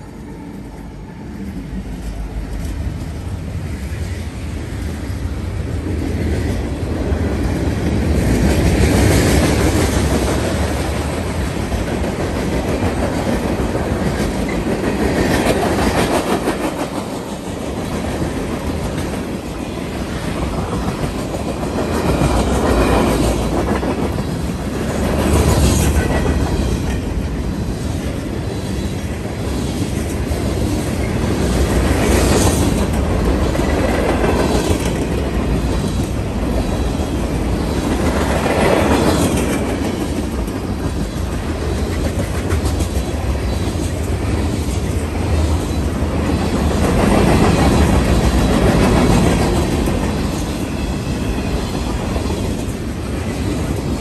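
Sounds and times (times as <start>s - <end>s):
train wheels clattering over rail joints: 28.8s - 54.0s.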